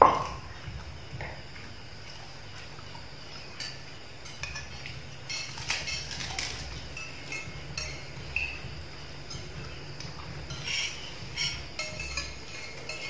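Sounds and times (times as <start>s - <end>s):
low steady hum: 0.0s - 13.0s
spoons clinking on plates: 3.6s - 13.0s.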